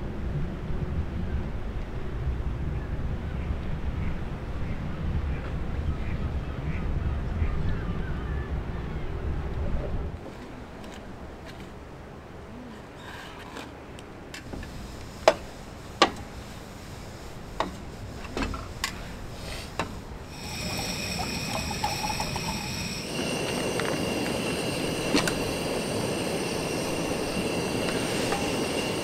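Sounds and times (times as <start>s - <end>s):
steady hiss with high whine: 14.3s - 29.0s
water pouring into kettle: 20.3s - 29.0s
cookware clinking: 20.6s - 23.0s.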